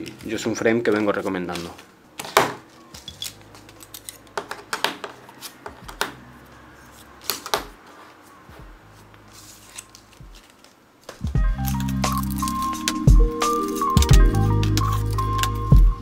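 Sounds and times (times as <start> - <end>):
plastic bags rustling: 6.8 - 16.0.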